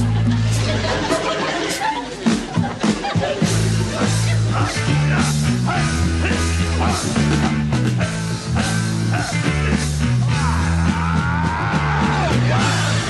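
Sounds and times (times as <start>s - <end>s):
heavy rock drumming: 0.0s - 13.0s
repeating bass line: 3.4s - 13.0s.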